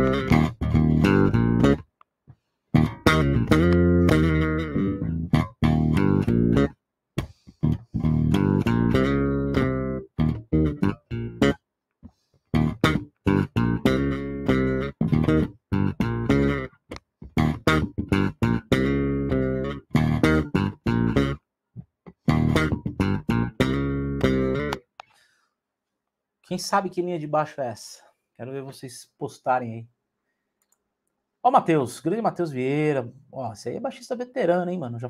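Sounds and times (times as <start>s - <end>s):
electric bass guitar: 0.0s - 1.9s, 2.8s - 11.6s, 12.5s - 24.9s.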